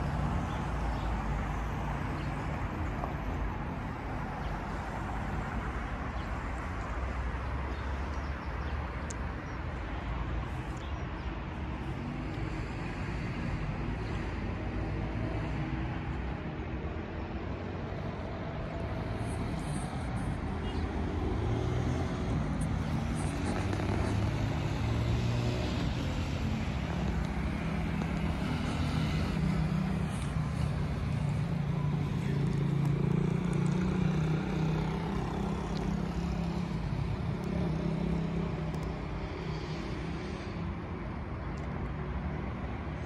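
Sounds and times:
road noise: 0:00.0 - 0:43.0
car engines humming: 0:11.6 - 0:43.0.

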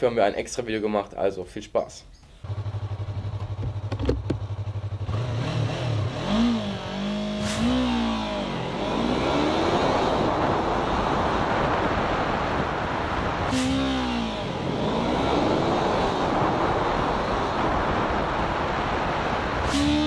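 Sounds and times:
motorcycle engine revving: 0:02.4 - 0:20.0
rushing wind noise: 0:06.1 - 0:20.0.

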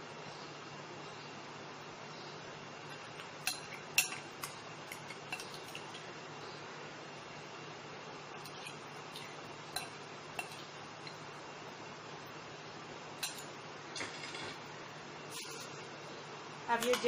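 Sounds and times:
steady background hiss: 0:00.0 - 0:17.0
spoon and glass bowls clinking: 0:02.9 - 0:06.0, 0:08.4 - 0:11.2, 0:13.2 - 0:13.5, 0:15.3 - 0:15.8, 0:16.8 - 0:17.0.

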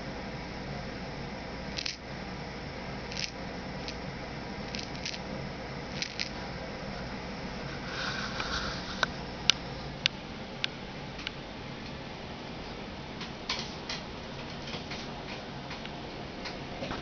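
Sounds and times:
steady low hum: 0:00.0 - 0:17.0
kaleidoscope wheel clicking: 0:01.7 - 0:02.0, 0:03.1 - 0:04.0, 0:04.7 - 0:05.3, 0:05.9 - 0:06.4.

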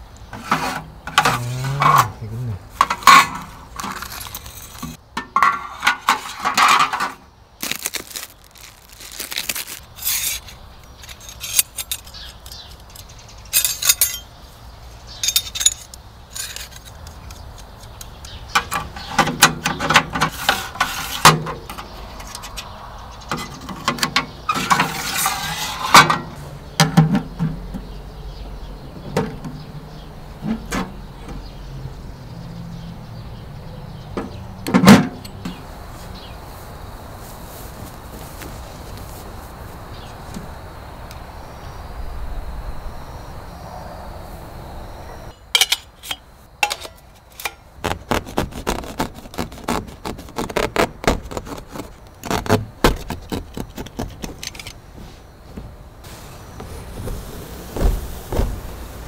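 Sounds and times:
metallic clinks and scrapes: 0:02.8 - 0:07.2, 0:08.0 - 0:14.4, 0:15.1 - 0:18.1, 0:24.5 - 0:26.4, 0:45.6 - 0:47.6, 0:54.1 - 0:54.8.

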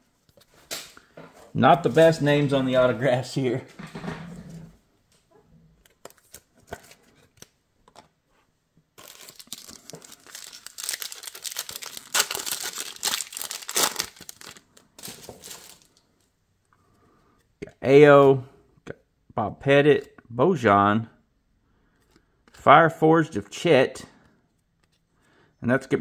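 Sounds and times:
foil card pack crinkling and tearing: 0:09.0 - 0:16.0.

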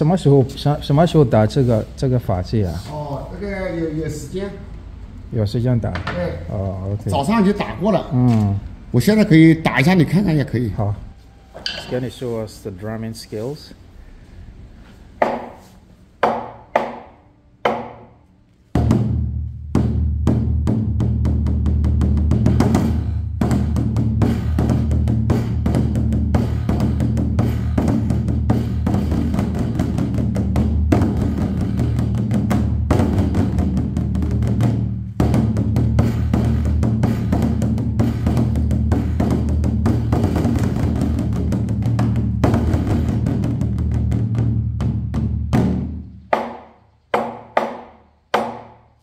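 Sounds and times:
large drum beaten by hand: 0:18.8 - 0:48.8.

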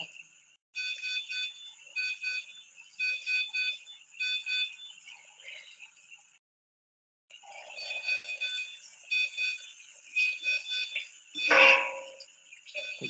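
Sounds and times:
patient monitor alarm beeping: 0:00.8 - 0:05.0, 0:07.5 - 0:13.0.

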